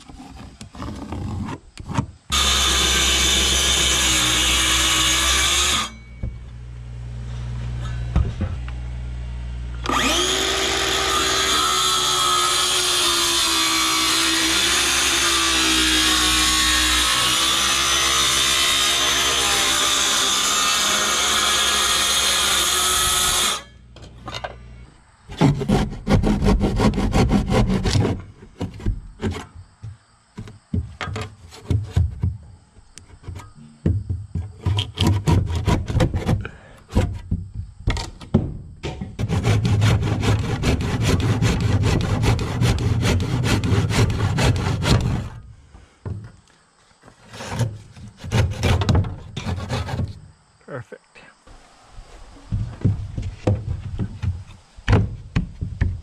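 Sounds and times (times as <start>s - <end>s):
circular saw cutting wood: 2.3s - 23.9s, 25.3s - 29.4s, 34.6s - 37.2s, 38.9s - 45.4s, 47.2s - 50.2s
handsaw rasping through wood: 9.9s - 23.7s, 25.3s - 29.5s, 34.6s - 37.2s, 39.2s - 45.4s, 47.2s - 50.2s.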